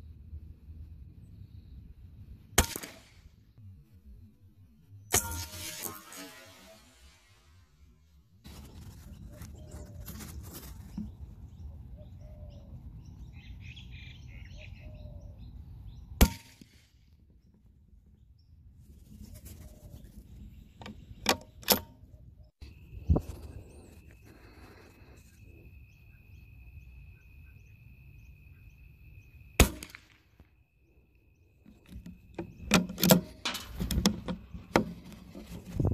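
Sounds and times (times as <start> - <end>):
faint bird chirps: 8.6 - 16.2, 22.1 - 29.6
rifle shot crack: 29.6 - 30.3.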